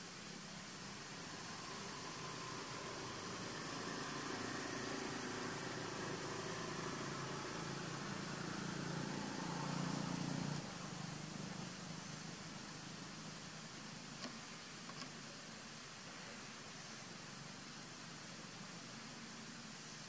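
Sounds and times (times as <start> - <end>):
low engine hum: 0.0 - 14.2.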